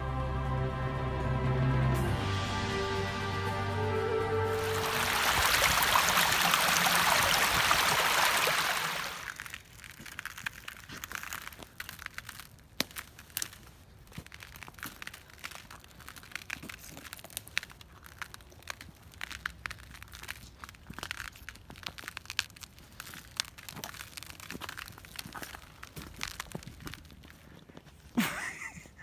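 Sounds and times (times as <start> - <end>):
water rushing over rocks: 4.5 - 9.4
footsteps crunching on frozen leaves: 4.5 - 29.0.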